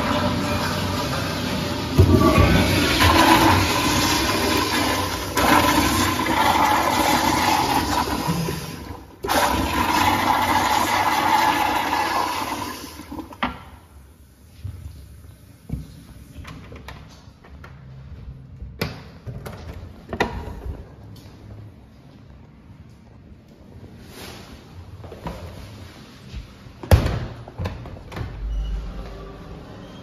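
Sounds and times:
toilet flush rush of water: 0.0s - 13.4s.

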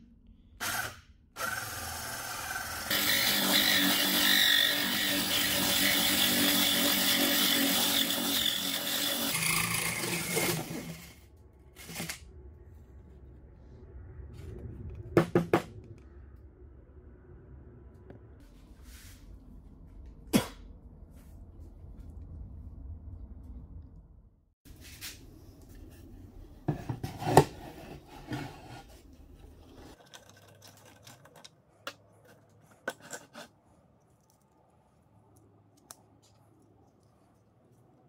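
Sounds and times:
low rumble: 11.2s - 24.6s.

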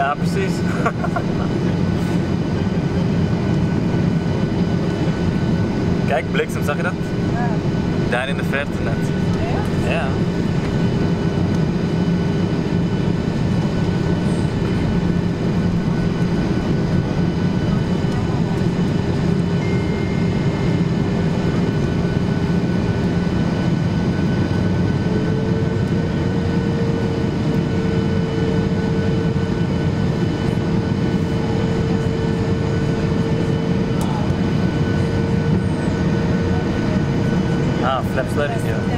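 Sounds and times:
jet engines droning: 0.0s - 38.9s.

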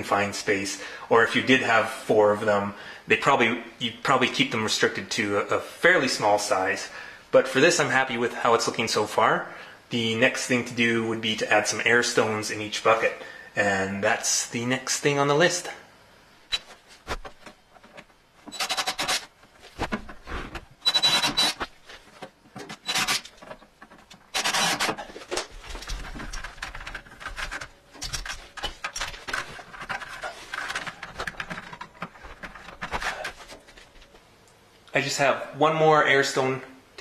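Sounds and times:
plastic parts rubbing and clicking: 16.5s - 34.1s
power drill into plastic: 20.8s - 21.6s, 22.8s - 23.3s, 24.3s - 25.0s.

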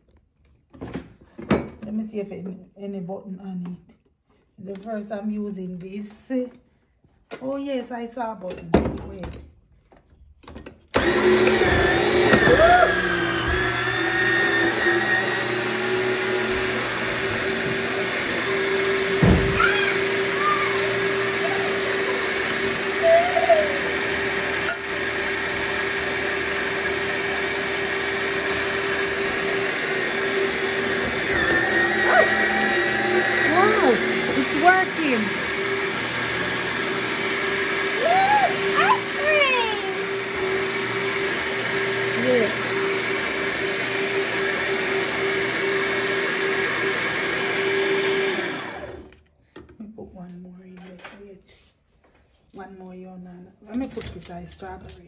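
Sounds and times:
electric motor humming: 11.0s - 49.0s.

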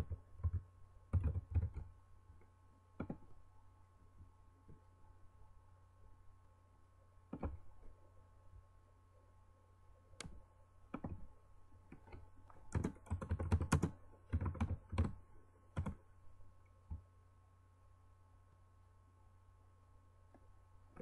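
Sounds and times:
computer keyboard typing: 0.0s - 1.9s, 3.0s - 3.3s, 7.3s - 7.6s, 10.2s - 11.3s, 11.9s - 16.0s.

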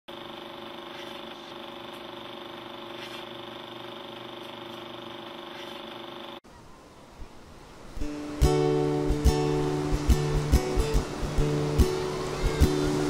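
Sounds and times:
film projector motor hum: 0.1s - 6.4s.

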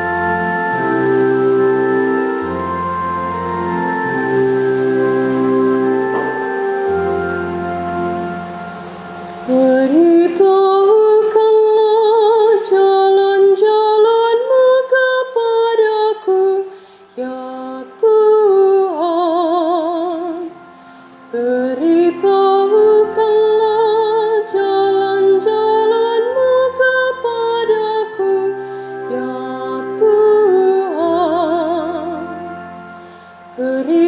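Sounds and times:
organ chord: 0.0s - 34.0s
woman singing a psalm: 6.9s - 34.0s.

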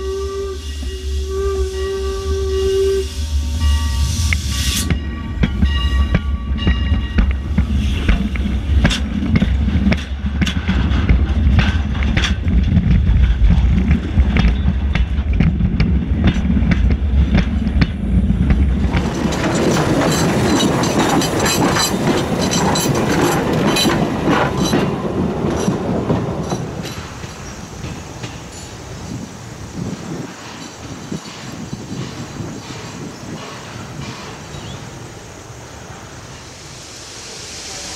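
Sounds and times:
train wheels rumbling on rails: 0.0s - 37.9s
wheels clicking over rail joints: 5.4s - 35.0s.

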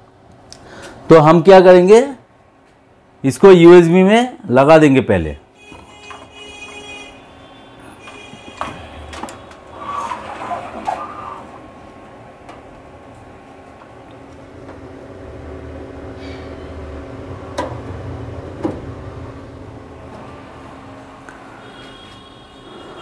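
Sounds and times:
steady low hum: 11.2s - 23.0s.

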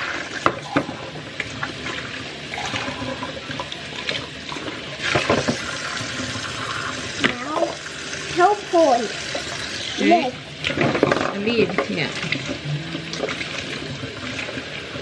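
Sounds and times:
tap running into metal sink: 5.0s - 6.2s.

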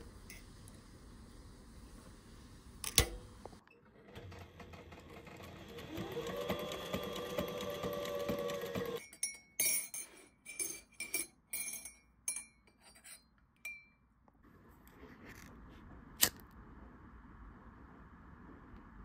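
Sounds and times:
sewing machine stitching: 3.8s - 9.0s
spoon clinking in ceramic mug: 9.0s - 14.0s.

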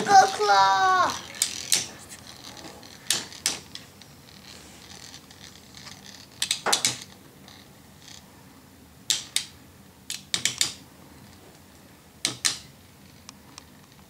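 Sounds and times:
spinning tops clacking: 0.0s - 4.5s.

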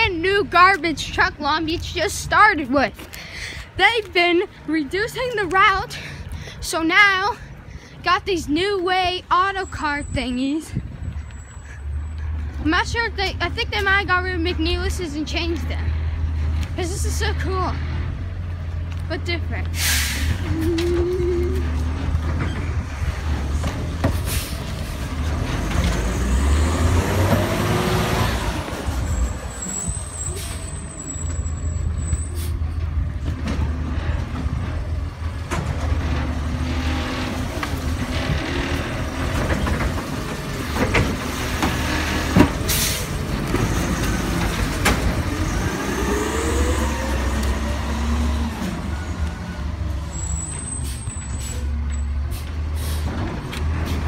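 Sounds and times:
garbage truck engine revving: 19.7s - 54.0s.

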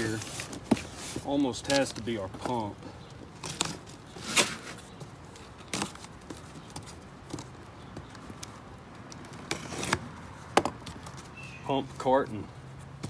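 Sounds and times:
box cutter slitting tape: 3.4s - 4.8s, 9.2s - 10.1s.

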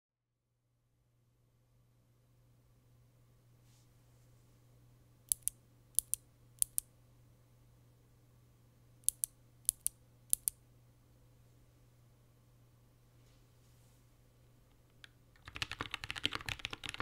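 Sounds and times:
keyboard switch clicking: 5.3s - 6.8s, 9.1s - 10.5s.

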